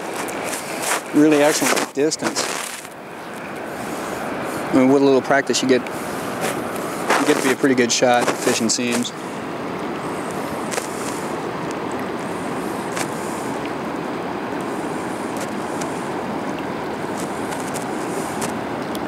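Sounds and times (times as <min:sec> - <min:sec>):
river current rushing: 0:00.0 - 0:19.0.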